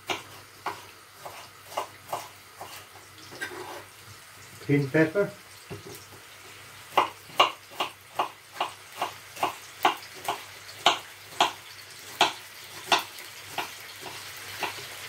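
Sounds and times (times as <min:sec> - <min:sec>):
knife chopping on wooden board: 0:00.0 - 0:02.8, 0:06.9 - 0:14.9
meat sizzling in a wok: 0:00.0 - 0:15.0.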